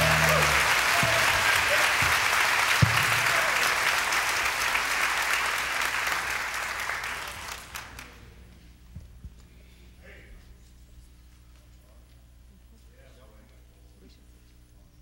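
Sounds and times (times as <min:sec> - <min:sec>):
audience applause: 0:00.0 - 0:08.2.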